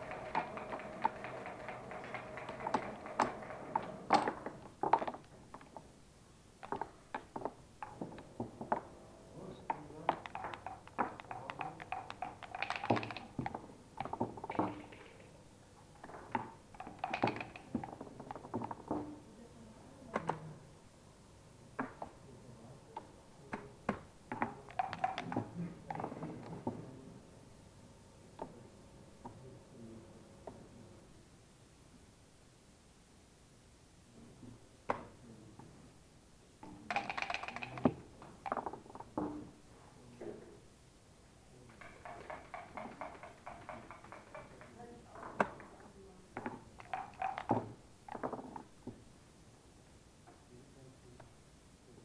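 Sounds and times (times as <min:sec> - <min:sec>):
checkers and dice clicking on board: 0:00.0 - 0:05.8, 0:06.6 - 0:08.8, 0:09.7 - 0:15.4, 0:16.0 - 0:19.1, 0:24.3 - 0:26.6, 0:36.6 - 0:39.2, 0:41.7 - 0:44.8, 0:46.4 - 0:48.7.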